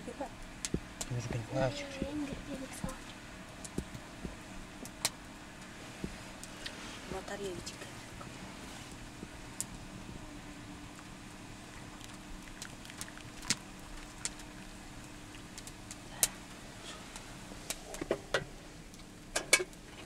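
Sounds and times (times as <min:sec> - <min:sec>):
low steady hum: 0:00.0 - 0:20.0
tea being poured: 0:11.7 - 0:14.7.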